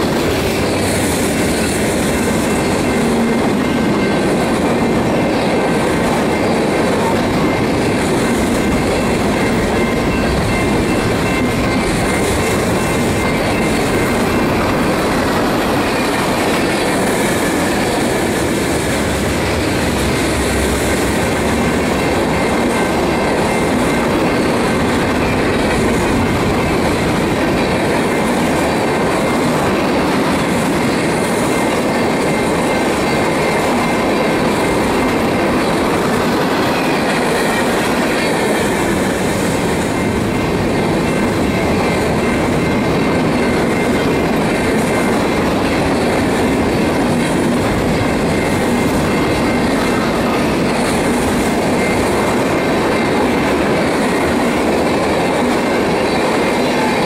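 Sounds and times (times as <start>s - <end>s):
steel wheels clattering on rails: 0.0s - 57.0s
faint high wheel squeal: 47.8s - 54.5s.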